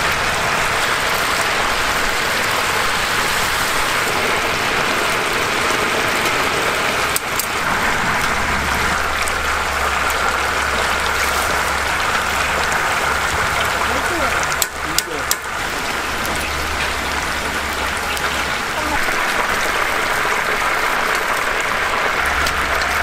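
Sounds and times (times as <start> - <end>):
chicken deep-frying in hot oil: 0.0 - 23.0.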